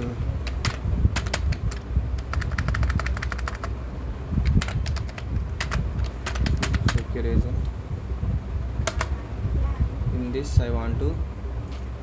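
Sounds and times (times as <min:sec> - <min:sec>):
steady low hum: 0:00.0 - 0:12.0
keyboard typing clicks: 0:00.5 - 0:03.7.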